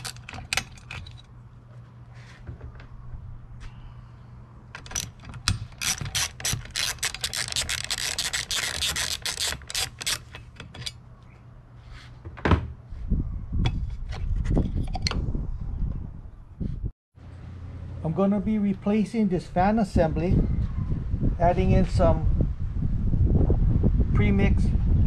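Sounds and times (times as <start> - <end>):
socket ratchet clicking: 0.0 - 1.2, 4.8 - 10.9.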